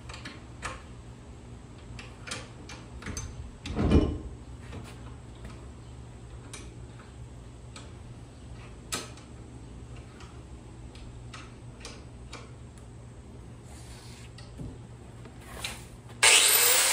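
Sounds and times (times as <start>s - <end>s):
light metal clicks and taps: 6.3s - 7.1s, 9.9s - 12.9s.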